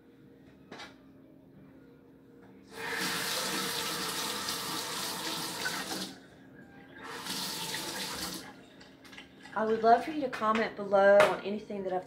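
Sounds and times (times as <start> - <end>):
faucet running into sink: 2.8 - 6.2, 7.0 - 8.5.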